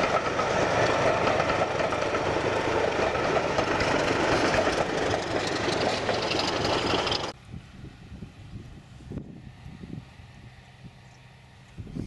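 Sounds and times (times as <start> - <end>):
wheels on rails: 0.0 - 7.4
diesel locomotive engine: 0.0 - 12.0.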